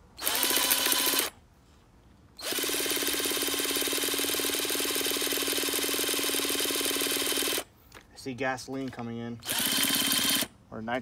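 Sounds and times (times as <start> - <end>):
cordless drill spinning: 0.2 - 1.4, 2.4 - 7.7, 9.4 - 10.5.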